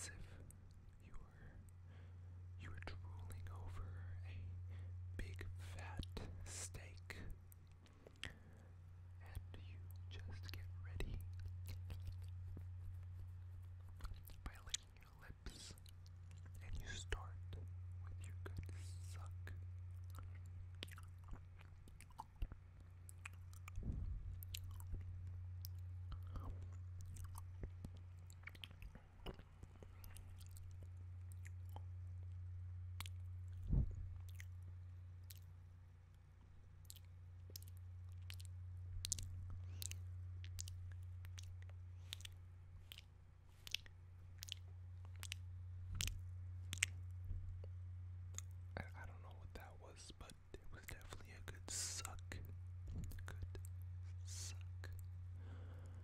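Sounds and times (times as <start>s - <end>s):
steady low hum: 0.0s - 56.0s
wet mouth clicks and smacks: 10.4s - 16.6s, 20.0s - 31.9s, 33.0s - 34.6s, 35.2s - 35.5s, 36.8s - 48.6s, 50.3s - 53.7s
breath thump: 23.8s - 24.3s, 33.7s - 34.1s
soft low thump: 23.8s - 25.1s, 33.6s - 34.2s, 47.2s - 47.5s, 52.8s - 53.2s.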